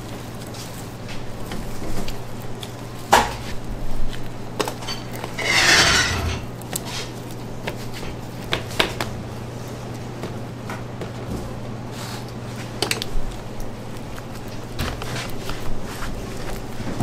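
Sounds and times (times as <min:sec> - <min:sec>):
utensils and dishes clinking: 0:04.8 - 0:06.6.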